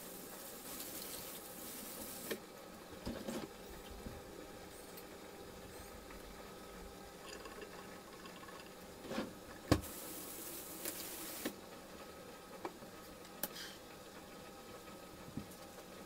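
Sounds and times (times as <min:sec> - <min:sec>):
hiss: 0:00.0 - 0:02.4, 0:09.8 - 0:11.6.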